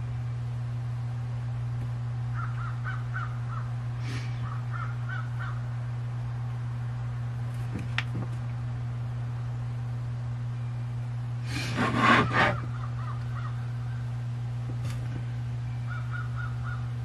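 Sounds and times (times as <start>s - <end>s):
steady low hum: 0.0s - 17.0s
crow cawing: 2.3s - 3.8s, 4.4s - 5.7s, 12.5s - 14.1s, 15.9s - 16.9s.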